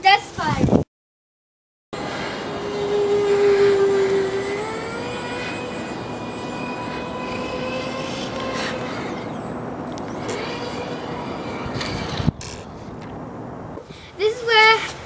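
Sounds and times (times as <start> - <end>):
model jet fan whine: 2.0 - 13.9.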